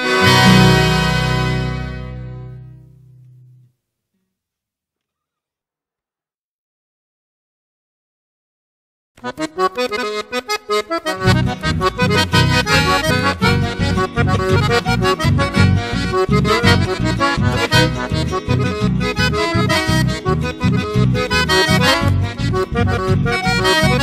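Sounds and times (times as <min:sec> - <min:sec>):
accordion: 0:00.0 - 0:03.6, 0:09.2 - 0:24.0
bass and rhythm beat: 0:11.0 - 0:24.0.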